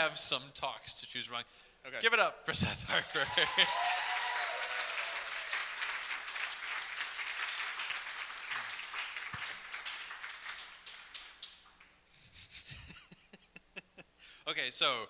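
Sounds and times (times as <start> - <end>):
audience applauding: 3.0 - 11.9.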